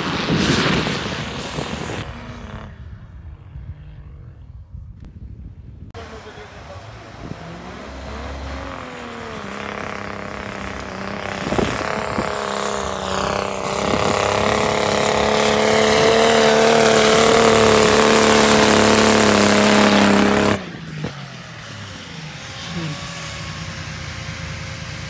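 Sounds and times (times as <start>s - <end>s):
diesel engine running hard: 6.0s - 25.0s.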